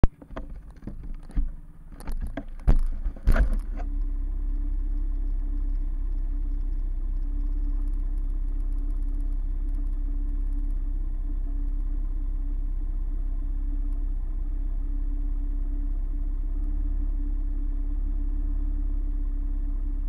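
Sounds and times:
knocks and clicks: 0.0s - 3.9s
motorcycle engine idling: 0.1s - 20.0s.

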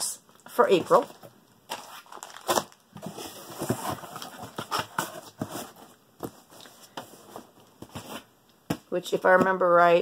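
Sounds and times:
packaging rustling and crinkling: 0.8s - 8.3s.

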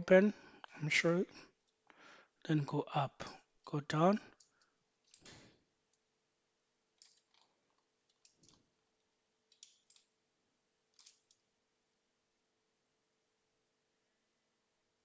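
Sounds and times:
computer mouse clicks: 7.0s - 8.6s, 9.5s - 10.1s, 10.9s - 11.5s.

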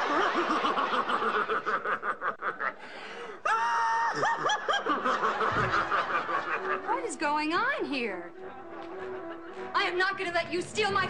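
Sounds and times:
laughter: 0.0s - 2.8s, 4.1s - 7.0s.

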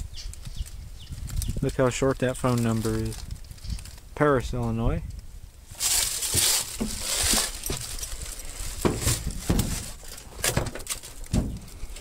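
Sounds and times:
footsteps crunching dry leaves: 5.7s - 10.3s.

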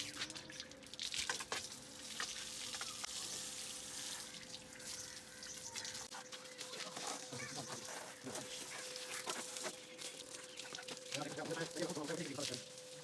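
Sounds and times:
water drips ticking: 0.0s - 3.7s, 9.9s - 13.0s
hose water spraying and splashing: 0.0s - 13.0s.

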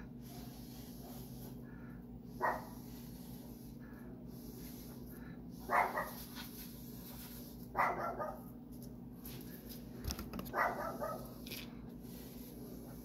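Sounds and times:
steady low hum: 0.0s - 13.0s
dog barking: 2.4s - 2.8s, 5.7s - 6.2s, 7.7s - 8.5s, 10.5s - 11.4s.

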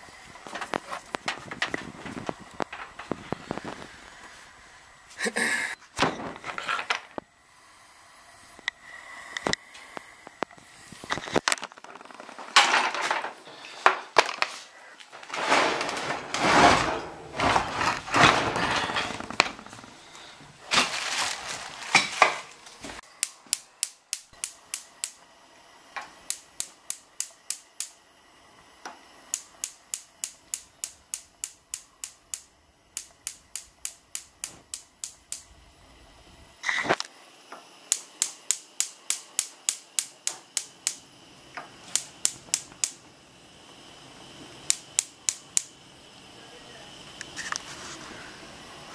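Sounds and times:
rustling and clattering: 11.4s - 14.6s, 15.2s - 20.0s
gas stove igniter clicking: 23.0s - 25.2s, 25.9s - 28.0s, 28.6s - 35.6s, 36.6s - 45.8s.

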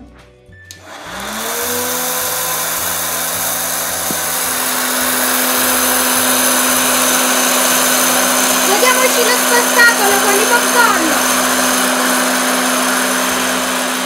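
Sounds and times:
popcorn maker fan whirring: 0.7s - 14.0s.

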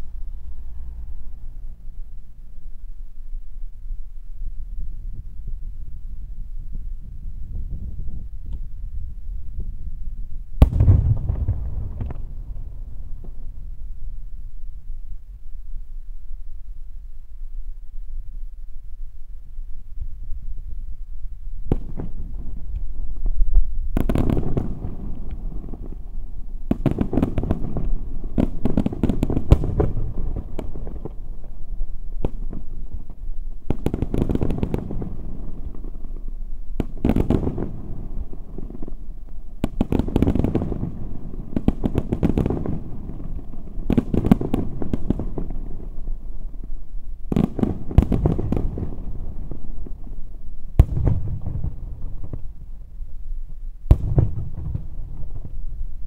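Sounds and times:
low rumble: 0.0s - 21.7s
fireworks bangs and crackle: 7.0s - 14.6s, 21.5s - 56.0s.

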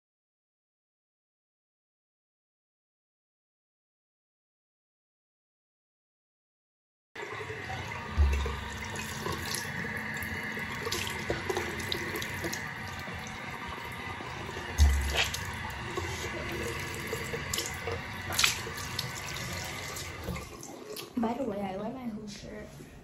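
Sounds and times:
tap running into a sink: 7.5s - 21.1s.

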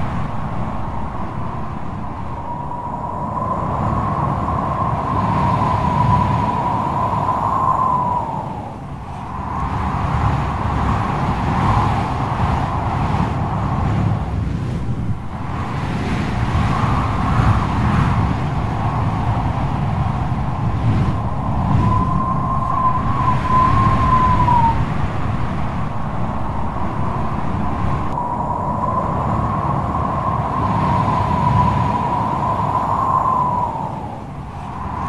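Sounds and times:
strong wind rumbling: 0.0s - 35.0s
thin wavering whistle: 21.2s - 24.8s.

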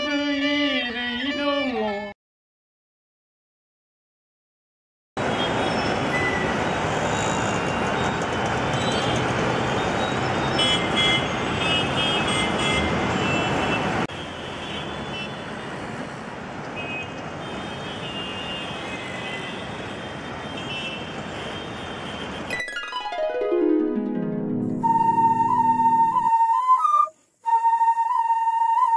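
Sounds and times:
street traffic hum: 5.2s - 22.6s.

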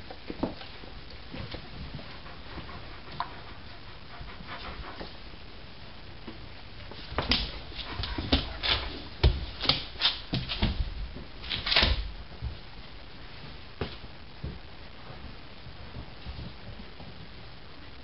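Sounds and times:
clicks and thumps on floor: 7.1s - 12.6s.

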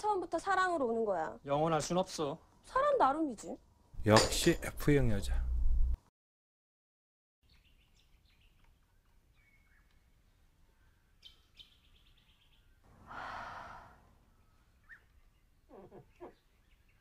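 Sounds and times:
bird chirps: 7.4s - 12.9s, 14.2s - 17.0s
woman exhaling loudly: 13.0s - 14.1s.

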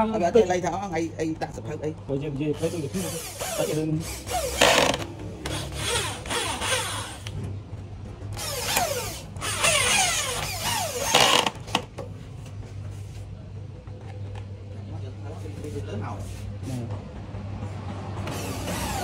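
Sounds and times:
electric drill driving screws: 3.1s - 7.3s, 8.3s - 11.8s, 18.2s - 19.0s.

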